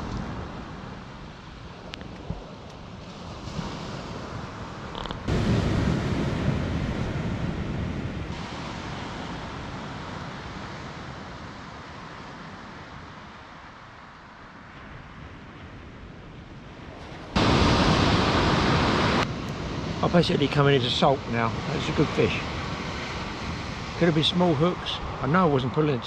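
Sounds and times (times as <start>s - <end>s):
wind on microphone: 0.0s - 13.7s, 14.5s - 26.0s
waves breaking on shingle beach: 2.9s - 13.0s, 17.0s - 26.0s.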